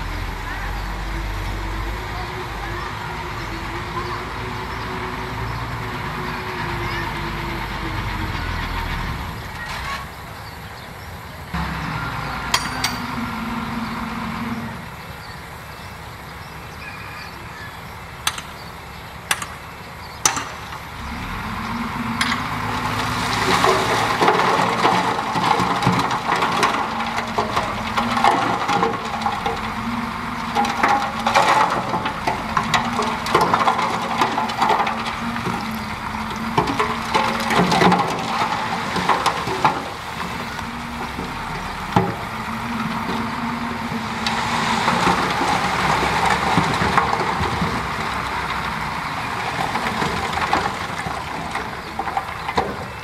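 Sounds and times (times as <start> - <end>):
heavy diesel engines running: 0.0 - 53.0
tracks clattering and scraping dirt: 0.0 - 53.0
sharp metal clanks: 12.5 - 13.3.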